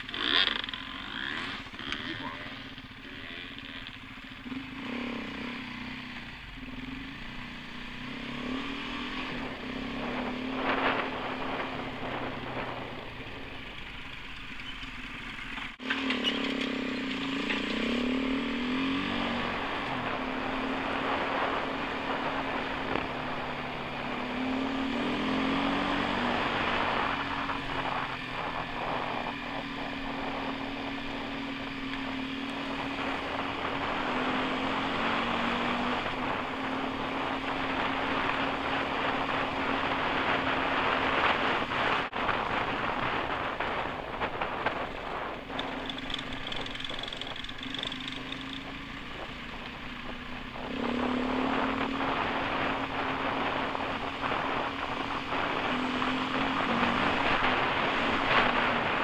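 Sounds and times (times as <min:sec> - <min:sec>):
tyres on gravel: 0:00.0 - 0:04.6, 0:09.6 - 0:59.0
off-road motorcycle engine: 0:00.0 - 0:59.0
wind rush: 0:09.0 - 0:13.7, 0:18.5 - 0:47.2, 0:48.8 - 0:59.0.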